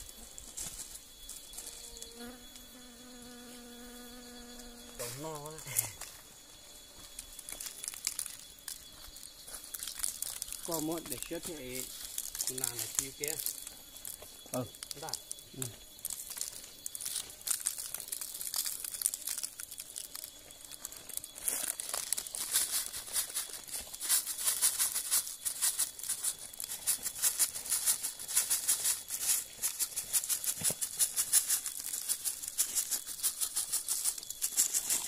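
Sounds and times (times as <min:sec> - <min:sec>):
plastic bag of salt shaking: 0:09.7 - 0:13.6, 0:16.0 - 0:35.0.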